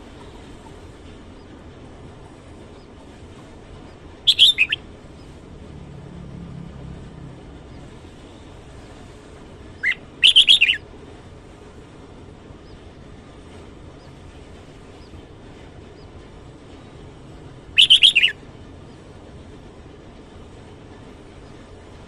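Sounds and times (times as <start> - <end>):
bird warbling: 4.3 - 4.8, 9.8 - 10.8, 17.8 - 18.4.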